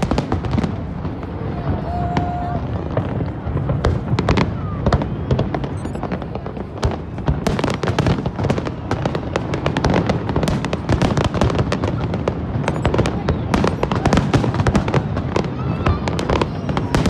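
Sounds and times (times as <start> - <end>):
fireworks bangs and crackling: 0.0 - 17.0.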